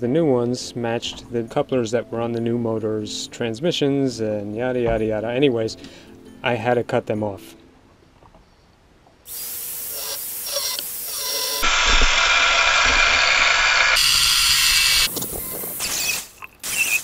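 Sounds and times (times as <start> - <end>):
angle grinder cutting steel: 9.3 - 15.1.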